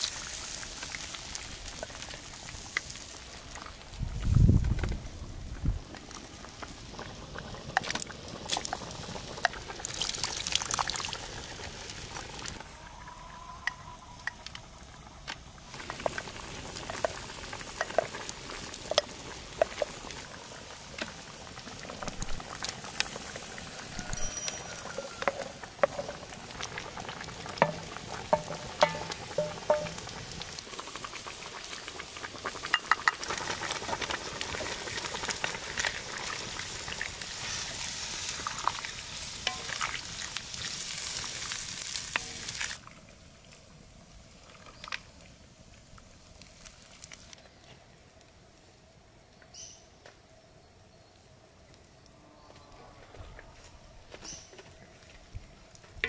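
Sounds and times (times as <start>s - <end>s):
stew bubbling in pot: 0.0s - 47.4s
spoon clinking on bowls: 24.1s - 26.1s.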